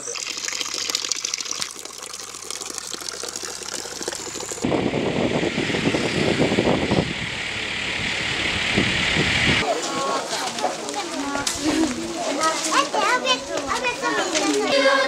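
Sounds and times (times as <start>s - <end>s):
water splashing and trickling: 0.0s - 4.7s
moving vehicle rumble: 4.5s - 9.6s.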